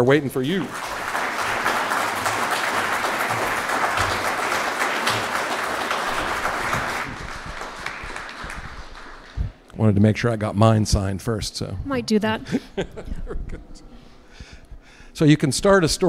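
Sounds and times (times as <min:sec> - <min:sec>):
audience applauding: 0:00.0 - 0:09.7.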